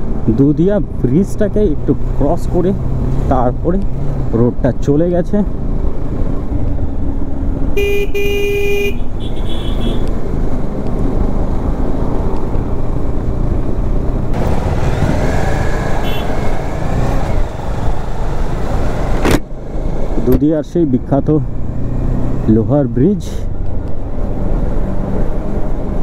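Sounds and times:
road rushing noise: 0:00.0 - 0:26.0
vehicle horn tooting: 0:07.8 - 0:10.0, 0:16.0 - 0:16.4.

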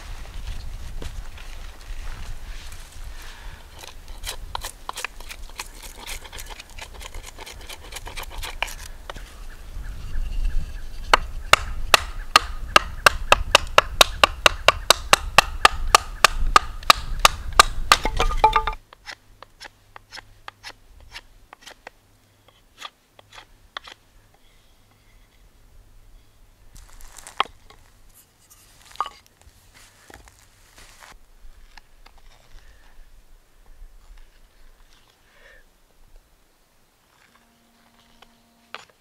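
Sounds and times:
sharp wooden knocks: 0:11.1 - 0:18.8.

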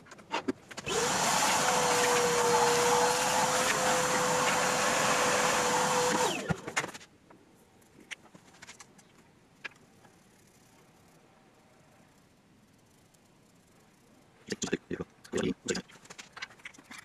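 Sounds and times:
workshop machine whirring: 0:00.4 - 0:07.0.

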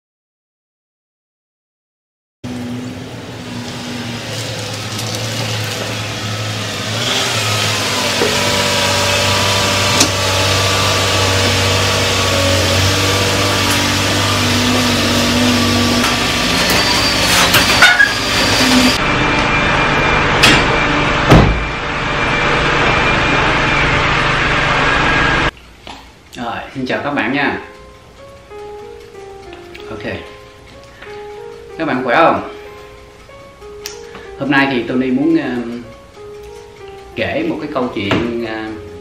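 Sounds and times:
van engine running: 0:02.5 - 0:25.5
heavy thud: 0:21.3 - 0:21.8.

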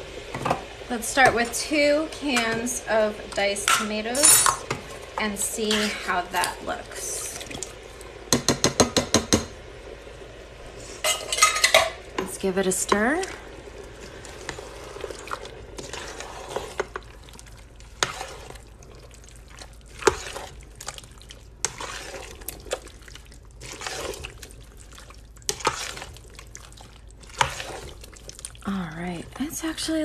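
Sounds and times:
spoon knocking against pot: 0:08.3 - 0:09.5
spoon stirring thick sauce: 0:11.1 - 0:29.4.

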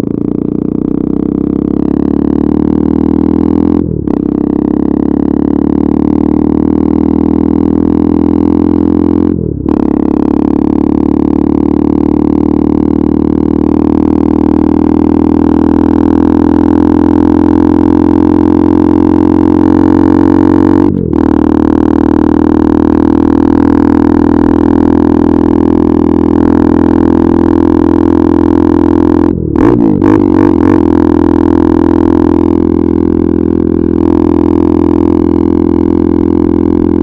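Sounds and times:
motorcycle engine accelerating: 0:00.0 - 0:37.0.

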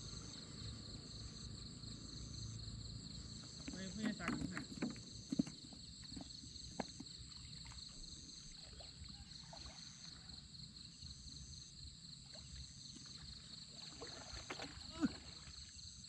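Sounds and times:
insects chirring: 0:00.0 - 0:16.0
pulsing insect call: 0:00.0 - 0:16.0.

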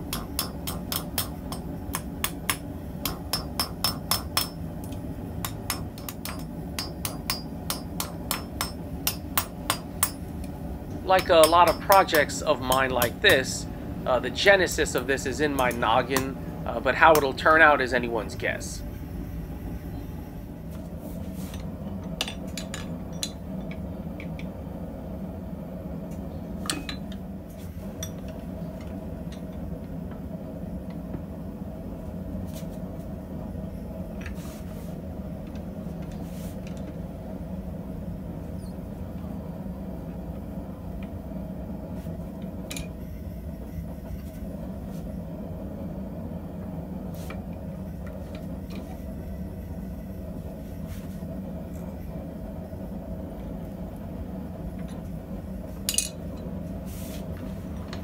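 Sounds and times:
low mechanical hum: 0:00.0 - 0:58.0
metal tools clinking: 0:55.9 - 0:56.2.

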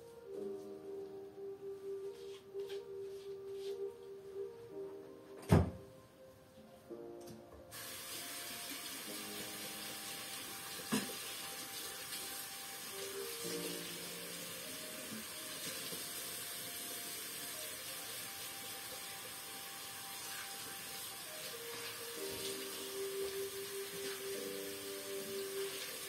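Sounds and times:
faint background music: 0:00.0 - 0:26.0
steady hiss: 0:07.7 - 0:26.0.

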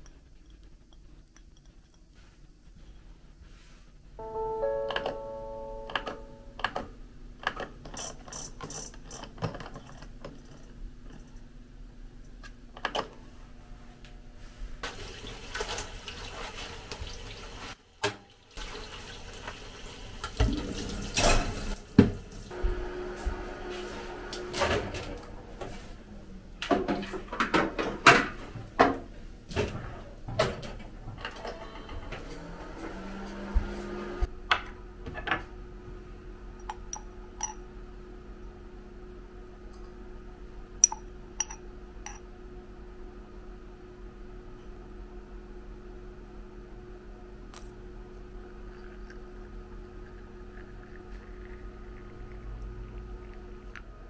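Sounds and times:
faint steady hum: 0:00.0 - 0:14.9, 0:34.2 - 0:54.0.

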